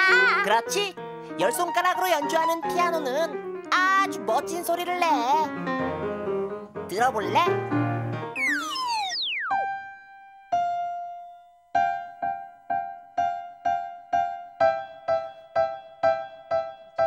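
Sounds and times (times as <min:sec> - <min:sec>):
piano notes: 0:00.0 - 0:17.0
falling whistle-like glide: 0:08.4 - 0:09.8.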